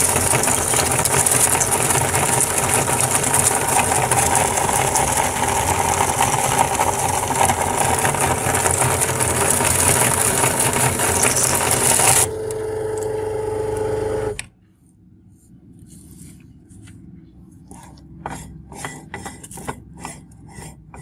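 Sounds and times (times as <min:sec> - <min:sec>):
grinder crunching dry pieces: 0:00.0 - 0:13.1
grinder motor hum: 0:00.0 - 0:14.5.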